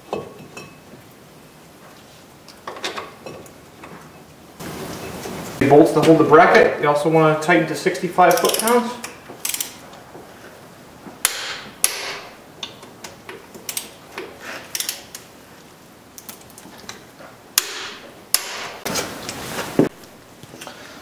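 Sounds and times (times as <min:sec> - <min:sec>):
steel tools clinking: 0:08.2 - 0:09.8
socket ratchet clicking: 0:08.3 - 0:08.8, 0:09.4 - 0:09.8.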